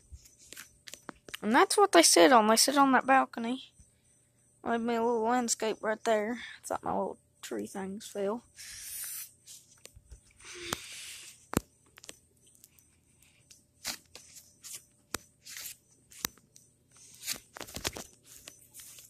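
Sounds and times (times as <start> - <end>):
handling rustle: 17.0 - 19.0.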